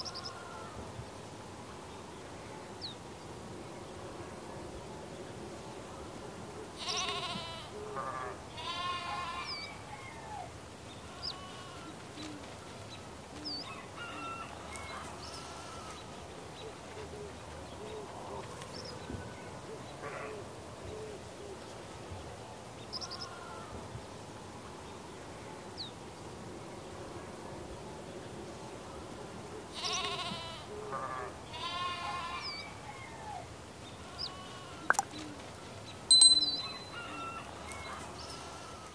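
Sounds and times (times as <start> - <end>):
farm animals bleating: 6.8 - 9.8, 11.0 - 12.0, 14.8 - 16.0, 29.7 - 32.7, 34.0 - 35.0, 37.5 - 38.9
bird chirps: 36.1 - 37.2.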